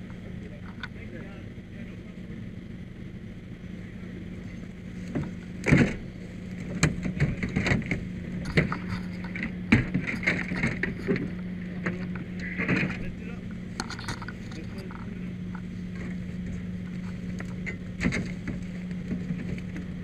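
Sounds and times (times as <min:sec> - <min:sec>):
steady low hum: 0:00.0 - 0:20.0
knocks and rattling clatter: 0:06.6 - 0:19.9.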